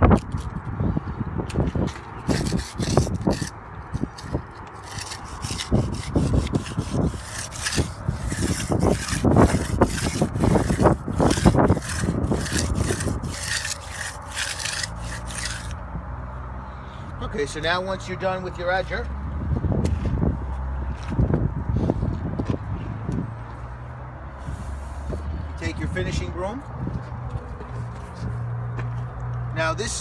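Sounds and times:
steel edger scraping concrete: 0:02.2 - 0:15.8.

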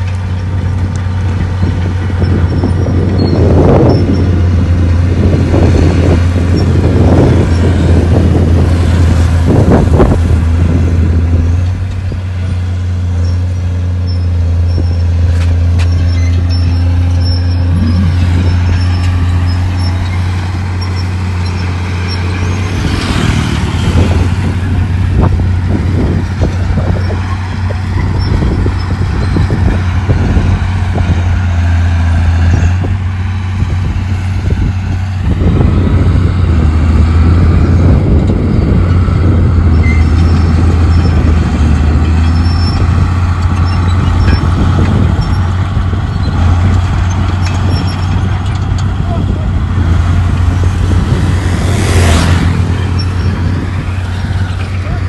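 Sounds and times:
diesel machinery drone: 0:00.0 - 0:55.0
clanking and rattling: 0:37.8 - 0:55.0.

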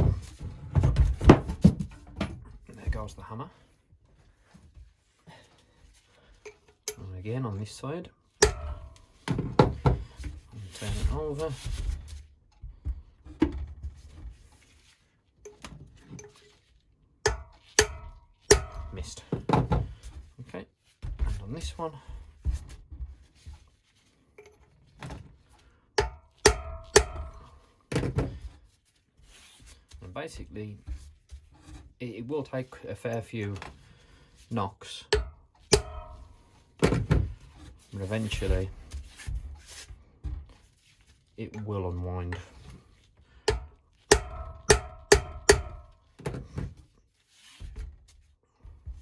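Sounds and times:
hammer striking steel chisel: 0:06.5 - 0:07.0, 0:08.4 - 0:09.0, 0:17.2 - 0:19.1, 0:26.0 - 0:27.6, 0:35.1 - 0:36.4, 0:43.5 - 0:46.0.

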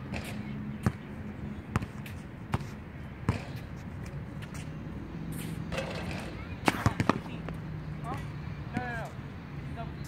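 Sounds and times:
basketball bouncing on hard court: 0:01.7 - 0:03.6, 0:05.8 - 0:07.3.

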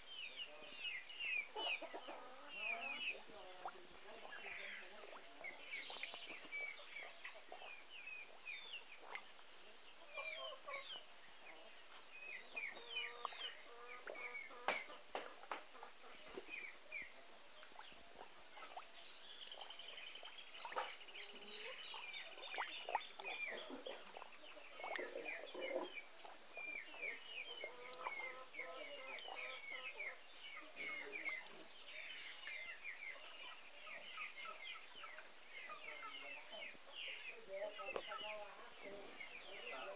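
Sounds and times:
birds chirping: 0:00.0 - 0:39.9
chickens clucking: 0:01.4 - 0:07.9, 0:12.5 - 0:17.1, 0:20.7 - 0:31.6.

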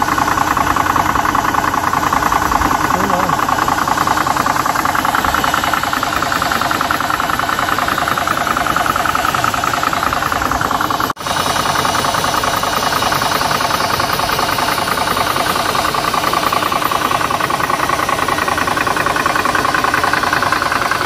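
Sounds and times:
air compressor running: 0:00.0 - 0:21.0.

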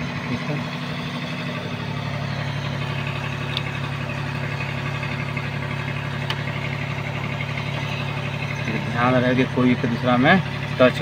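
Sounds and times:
heavy machinery droning: 0:00.0 - 0:11.0.

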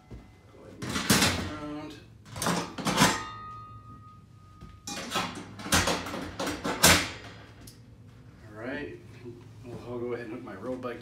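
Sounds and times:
knocks and rattles: 0:04.9 - 0:07.6.

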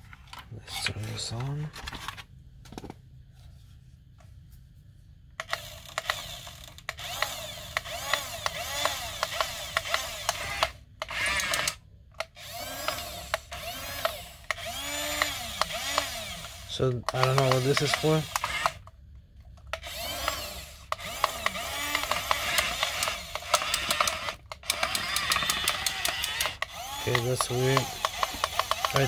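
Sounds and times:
toy tank motors whirring: 0:05.4 - 0:18.9, 0:19.7 - 0:29.0.

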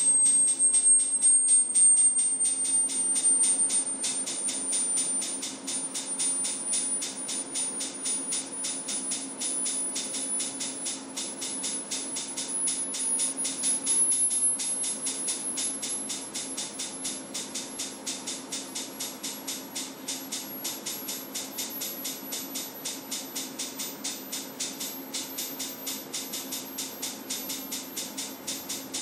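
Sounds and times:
sine tone sweeping upward: 0:00.0 - 0:05.2.

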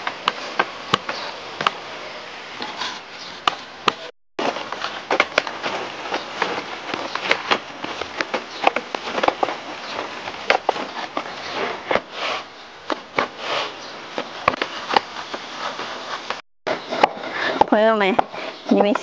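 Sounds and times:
hands kneading dough: 0:02.6 - 0:19.0.

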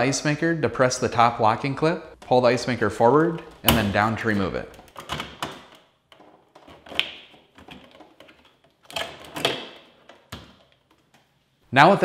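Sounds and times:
plastic clicks and knocks: 0:03.2 - 0:11.3.

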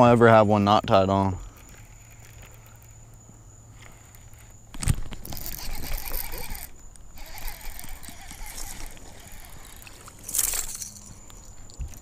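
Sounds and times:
gear rustling: 0:01.5 - 0:12.0.

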